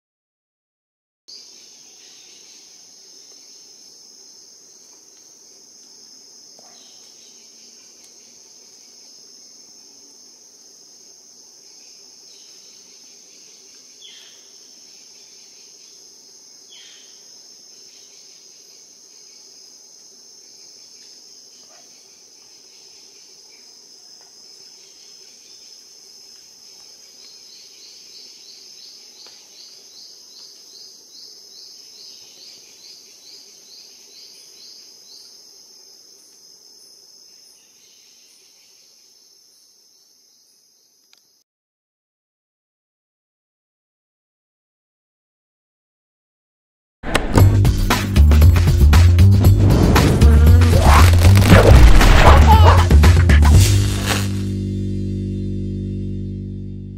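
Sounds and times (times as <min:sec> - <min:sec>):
insect chirping: 0:01.3 - 0:41.4, 0:49.8 - 0:53.0, 0:53.6 - 0:54.5
high-pitched insect buzz: 0:49.8 - 0:54.6
short falling calls: 0:49.9 - 0:54.4.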